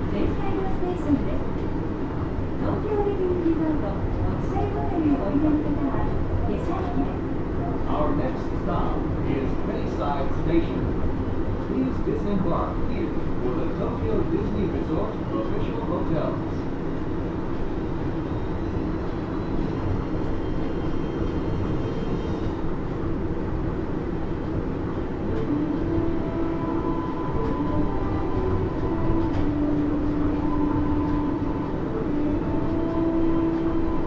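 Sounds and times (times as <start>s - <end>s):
monorail car rumble: 0.0s - 34.0s
humming tones: 25.2s - 34.0s.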